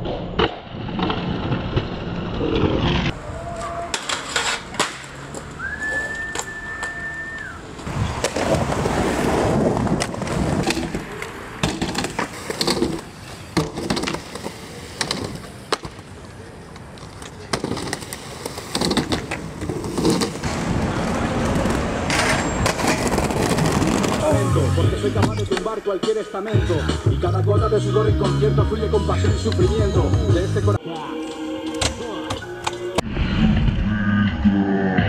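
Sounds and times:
skateboards rolling on concrete: 0.0s - 33.0s
skateboard grinding metal handrail: 0.1s - 6.6s, 7.8s - 16.0s, 17.0s - 25.8s
skateboard clacks: 3.1s - 26.2s.

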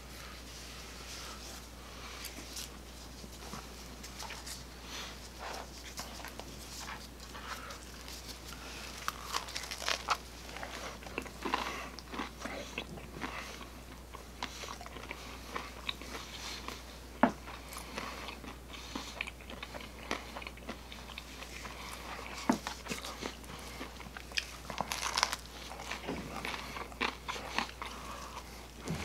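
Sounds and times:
low steady hum: 0.0s - 29.0s
pizza crust crunching: 5.4s - 16.8s, 17.5s - 29.0s.

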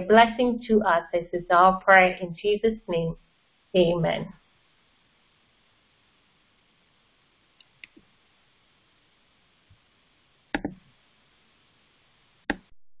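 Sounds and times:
quiet hiss: 0.0s - 12.7s
mouse clicks: 7.6s - 8.1s, 10.5s - 10.8s.

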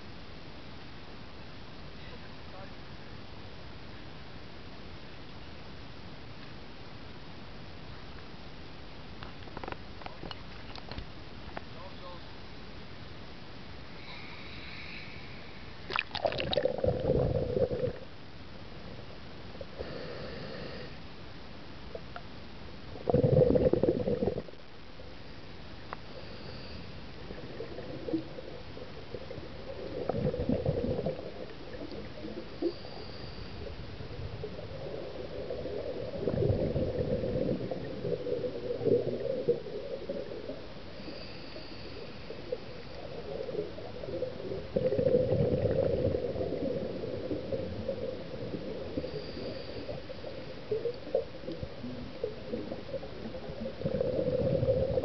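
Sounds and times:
steady hiss: 0.0s - 55.0s
underwater bubbles gurgling: 15.8s - 18.2s, 22.9s - 24.7s, 26.1s - 55.0s.

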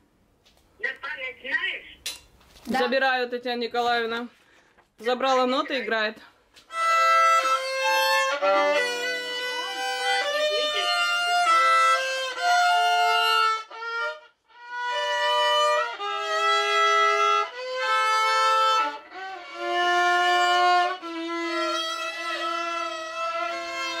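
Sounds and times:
violin slow melody: 6.6s - 24.0s.

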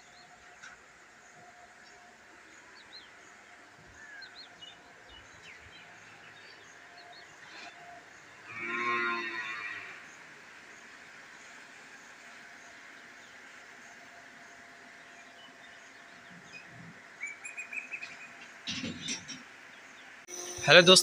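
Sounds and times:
cow mooing: 8.4s - 10.1s.

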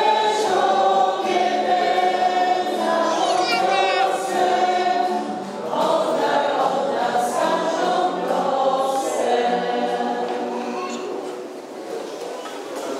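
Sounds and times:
choir singing a hymn: 0.0s - 11.6s.

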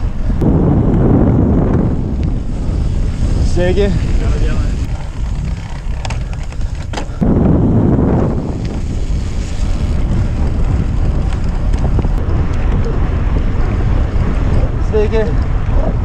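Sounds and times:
wind buffeting microphone: 0.0s - 16.0s
tyres rumbling on gravel: 0.6s - 14.9s.

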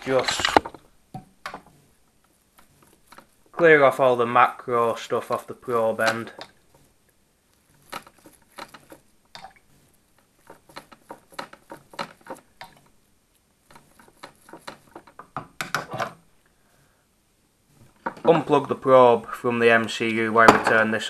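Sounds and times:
toothbrush scrubbing: 13.7s - 15.2s.

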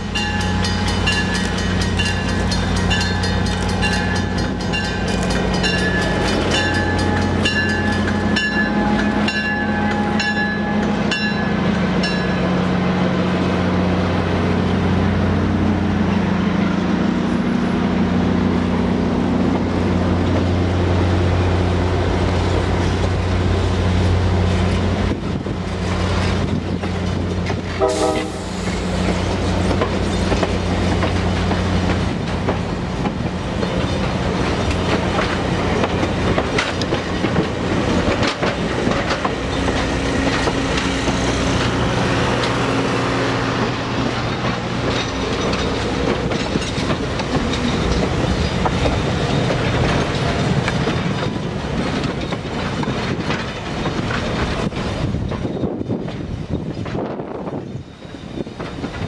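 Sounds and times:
crossing bell ringing: 0.0s - 12.7s
wheels clicking over rail joints: 0.0s - 12.8s, 21.7s - 59.0s
locomotive engine drone: 0.0s - 59.0s.

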